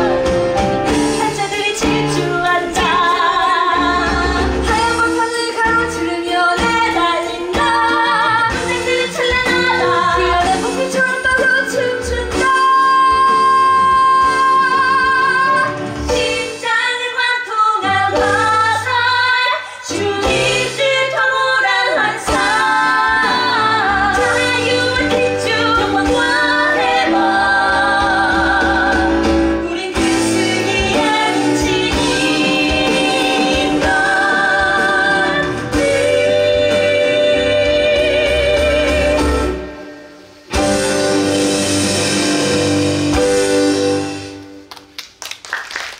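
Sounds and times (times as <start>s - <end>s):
instrumental accompaniment: 0.0s - 45.5s
women singing: 1.0s - 39.6s.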